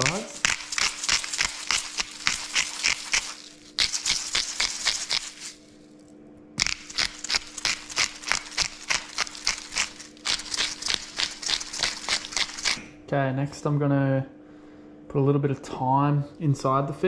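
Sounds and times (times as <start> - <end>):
pepper grinder grinding: 0.0 - 5.7, 6.6 - 12.9
salt grinder crunching: 0.0 - 5.8, 6.6 - 12.9.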